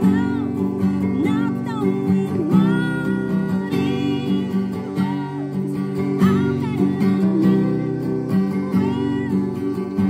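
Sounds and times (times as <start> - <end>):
acoustic guitar strumming: 0.0 - 10.0
woman singing: 0.0 - 10.0.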